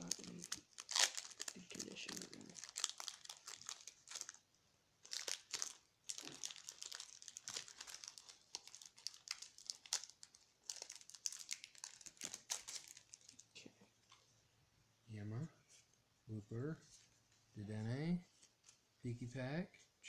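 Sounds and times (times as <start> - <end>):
foil wrapper crinkling: 0.0 - 4.4, 5.0 - 13.5.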